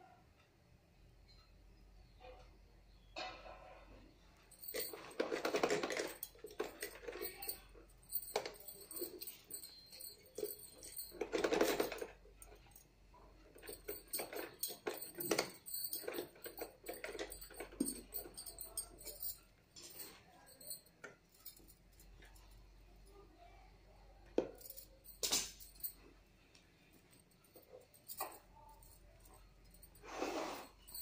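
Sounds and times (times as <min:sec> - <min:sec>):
metallic clicking and clatter: 0:04.4 - 0:23.2, 0:24.4 - 0:26.1, 0:26.9 - 0:30.0.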